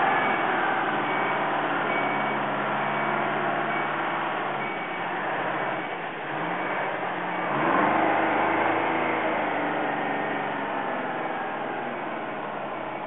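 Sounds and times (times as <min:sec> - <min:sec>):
diesel truck engine running: 0:00.0 - 0:13.0.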